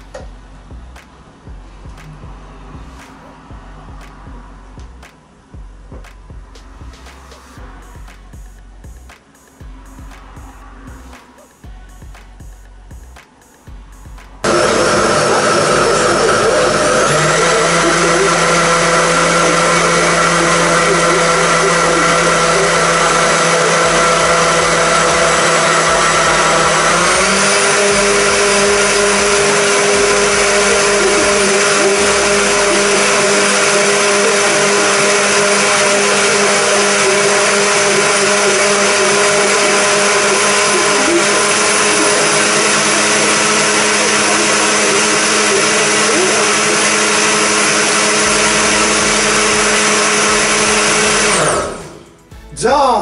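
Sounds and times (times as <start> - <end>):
blender motor running: 14.4 - 52.0.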